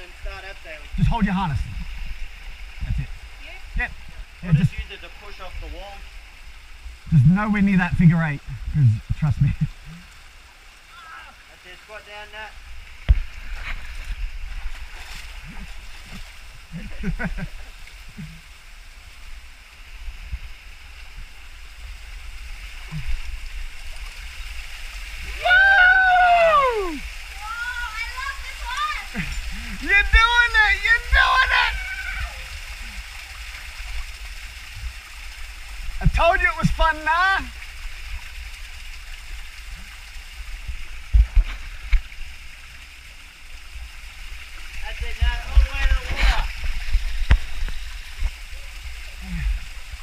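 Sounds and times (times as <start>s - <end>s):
water rushing over rocks: 0.0s - 50.0s
short low thumps: 7.1s - 9.8s.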